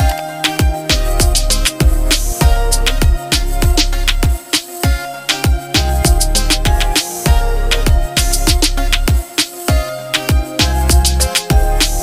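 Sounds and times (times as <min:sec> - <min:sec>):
electronic music with kick drum: 0:00.0 - 0:12.0.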